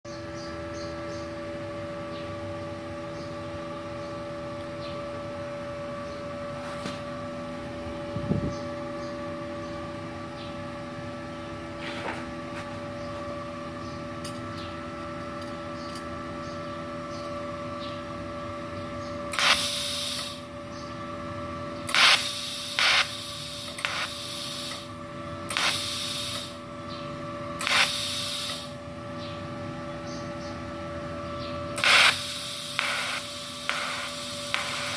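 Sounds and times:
welder electrical hum: 0:00.1 - 0:34.9
gas hissing at torch: 0:19.3 - 0:20.6, 0:21.8 - 0:26.7, 0:27.6 - 0:28.8, 0:31.8 - 0:34.9.

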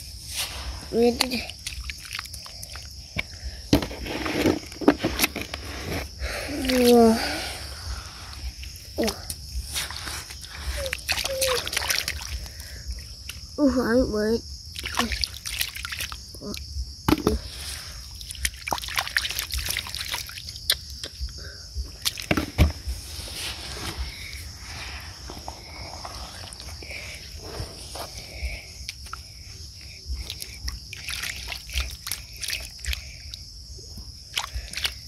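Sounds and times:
hands sloshing through muddy water: 0:00.2 - 0:03.0, 0:09.6 - 0:13.4, 0:14.8 - 0:16.3, 0:17.3 - 0:21.2, 0:30.1 - 0:33.5, 0:34.1 - 0:35.0
small splashes and trickles: 0:00.4 - 0:03.6, 0:06.5 - 0:13.5, 0:14.7 - 0:21.2, 0:21.9 - 0:22.6, 0:28.8 - 0:35.0.

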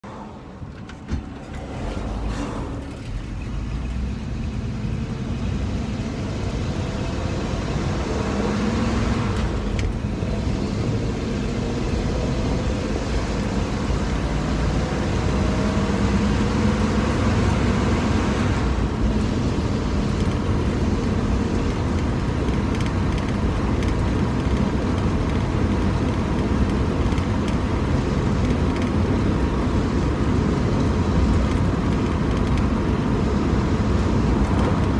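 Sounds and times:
road noise inside car: 0:00.0 - 0:34.9
car engine accelerating: 0:01.4 - 0:34.9.

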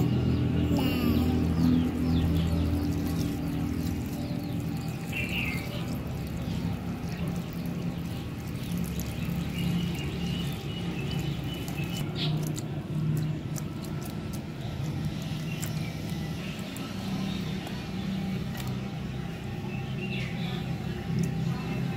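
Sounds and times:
water poured into bowl: 0:02.4 - 0:17.8.

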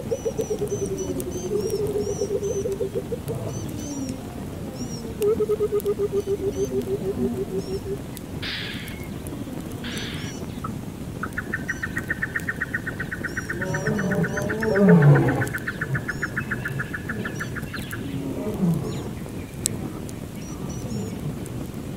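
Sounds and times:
deep animal call: 0:00.0 - 0:10.4, 0:12.9 - 0:19.2
faint high chirps: 0:03.4 - 0:10.7
high pulsed trill: 0:08.4 - 0:09.1, 0:09.8 - 0:10.5.

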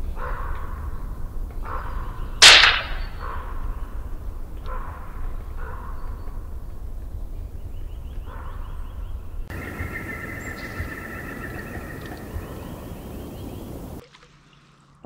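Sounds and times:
birds chattering: 0:09.5 - 0:14.0.

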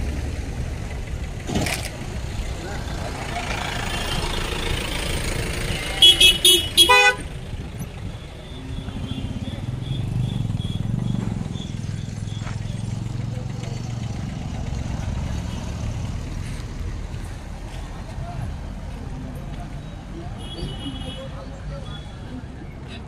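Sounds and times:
engine running with low rumble: 0:00.0 - 0:06.6, 0:07.2 - 0:19.8
vehicle horn honking: 0:05.7 - 0:07.4, 0:08.4 - 0:12.4, 0:20.4 - 0:22.2.

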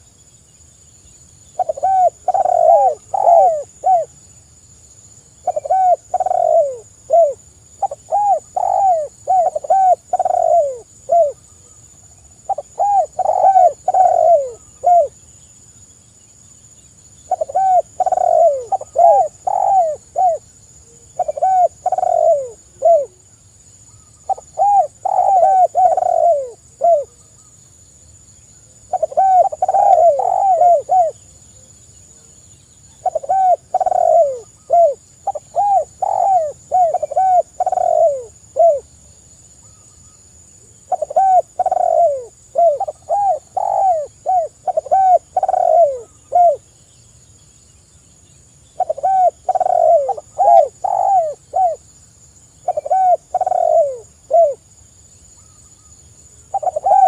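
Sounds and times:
faint high-pitched hiss: 0:00.0 - 0:57.0
dove cooing: 0:01.6 - 0:04.2, 0:05.4 - 0:11.8, 0:12.5 - 0:15.2, 0:17.3 - 0:23.2, 0:24.0 - 0:27.2, 0:28.9 - 0:32.2, 0:32.9 - 0:38.9, 0:40.8 - 0:46.7, 0:48.8 - 0:51.8, 0:52.6 - 0:54.7, 0:56.5 - 0:57.0.

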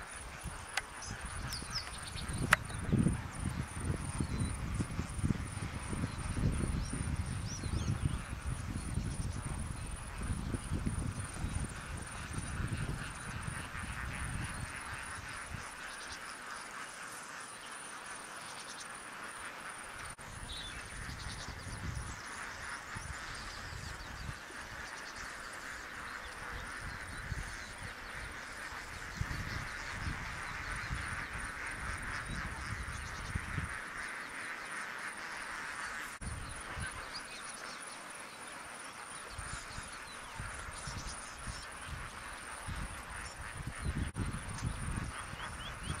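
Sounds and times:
flock of flamingos calling: 0:09.4 - 0:18.4, 0:19.0 - 0:46.0.

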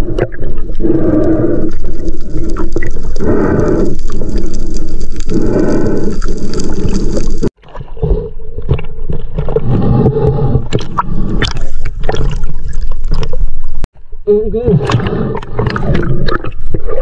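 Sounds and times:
muffled underwater water noise: 0:00.0 - 0:17.0
water sloshing and splashing: 0:06.6 - 0:13.9.

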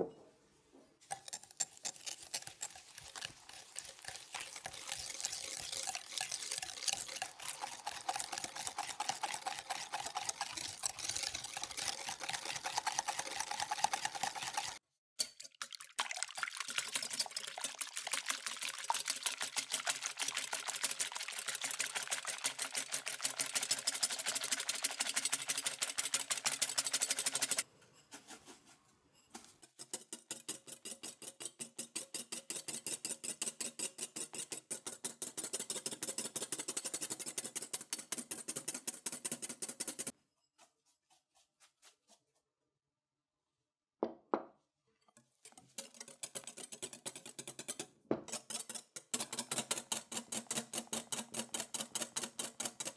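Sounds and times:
whisk beating against glass bowl: 0:01.1 - 0:27.6, 0:29.8 - 0:40.7, 0:45.4 - 0:52.9.

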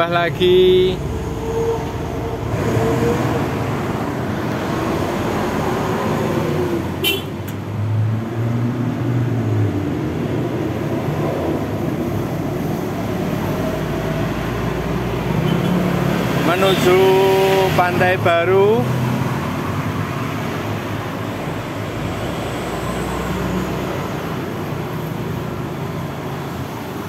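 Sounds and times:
tyres rushing on wet road: 0:00.0 - 0:27.0.

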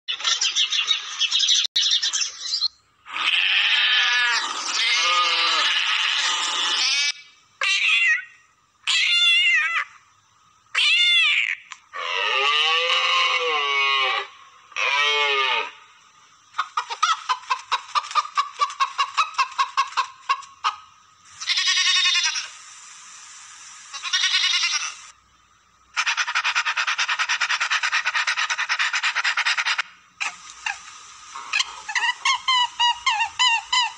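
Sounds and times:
livestock and pet calls: 0:00.1 - 0:07.2, 0:21.4 - 0:22.6, 0:23.9 - 0:25.1
budgerigar chatter: 0:25.9 - 0:33.9.

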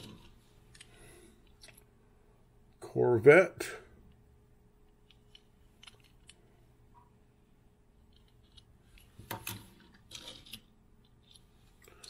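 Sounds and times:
toy cars clicking and clattering: 0:08.1 - 0:12.0.

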